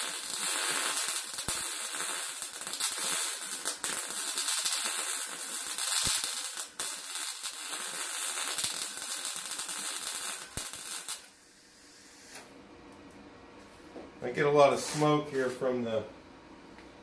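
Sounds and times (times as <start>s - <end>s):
welder arc crackling: 0.0s - 11.4s.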